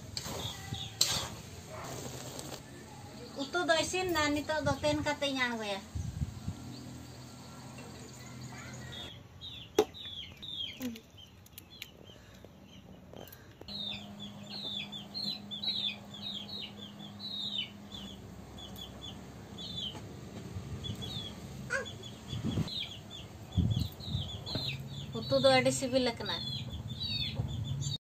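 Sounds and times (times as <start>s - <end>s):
birds chirping: 0.2s - 28.0s.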